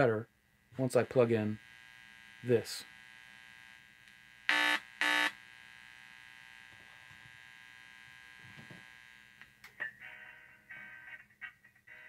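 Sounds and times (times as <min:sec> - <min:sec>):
speaker buzzes: 0:00.6 - 0:09.7.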